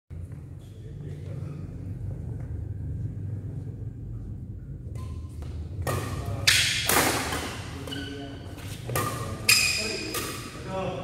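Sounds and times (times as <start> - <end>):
steady low hum: 0.1 - 11.0
rackets striking shuttlecock: 5.0 - 7.6.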